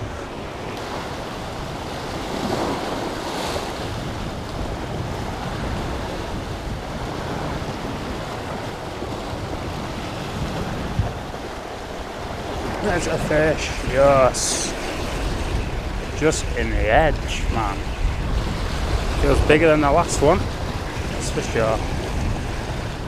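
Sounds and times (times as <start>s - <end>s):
surf breaking against rocks: 0.0s - 23.0s
wind buffeting microphone: 0.0s - 23.0s.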